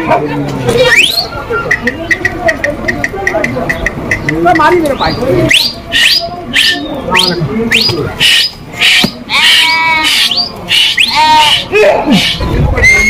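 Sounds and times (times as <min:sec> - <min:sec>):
sheep and goats bleating: 0:09.2 - 0:10.4, 0:11.0 - 0:12.4.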